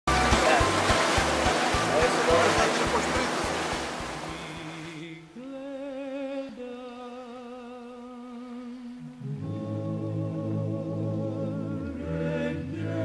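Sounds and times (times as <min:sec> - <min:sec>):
slow melody with vibrato: 0:00.1 - 0:04.5
sea waves rushing: 0:00.1 - 0:05.1.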